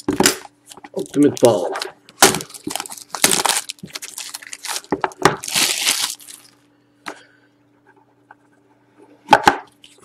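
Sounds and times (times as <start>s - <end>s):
shrink wrap crinkling: 0.0s - 6.7s.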